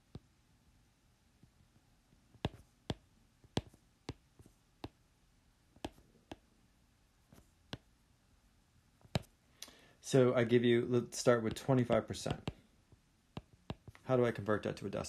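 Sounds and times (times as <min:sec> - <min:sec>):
pen clicking on paper: 0:02.4 - 0:05.0, 0:05.8 - 0:06.4.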